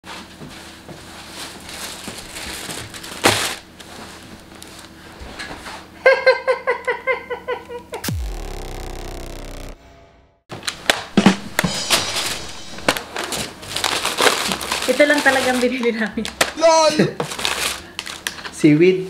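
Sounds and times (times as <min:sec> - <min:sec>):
plastic bag rustling: 0:01.4 - 0:03.6, 0:13.1 - 0:15.7
sound falling steeply in pitch: 0:08.0 - 0:10.4, 0:11.1 - 0:13.0.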